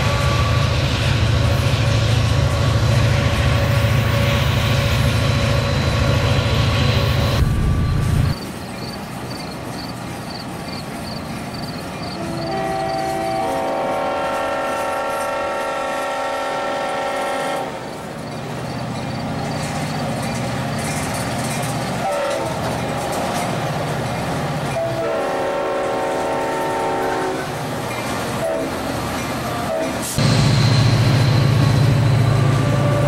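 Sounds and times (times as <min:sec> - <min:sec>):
model locomotive horn: 0:12.2 - 0:17.8, 0:22.0 - 0:23.4, 0:24.7 - 0:27.6, 0:28.4 - 0:28.8.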